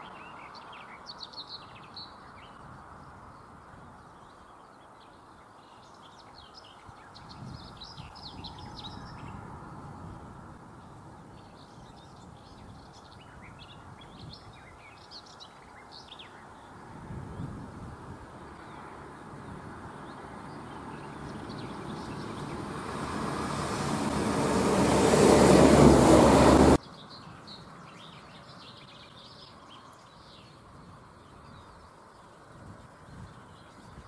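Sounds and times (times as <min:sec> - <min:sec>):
birds chirping: 0:18.4 - 0:34.0
vehicle rolling noise: 0:20.6 - 0:26.8.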